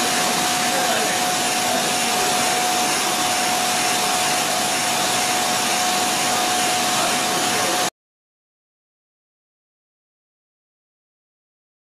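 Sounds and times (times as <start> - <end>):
machine hissing: 0.0 - 7.9
machine whine: 0.0 - 7.9.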